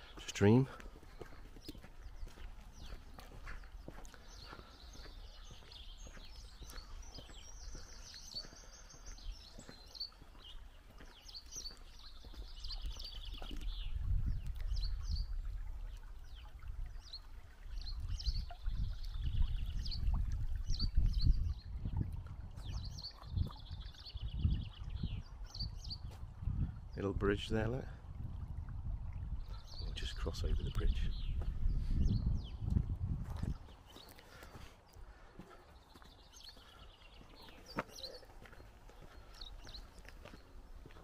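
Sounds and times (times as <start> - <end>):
songbirds trilling and chirping: 0.0 - 41.0
stream water running: 0.0 - 41.0
low gusty rumble: 28.0 - 29.7, 30.5 - 33.8.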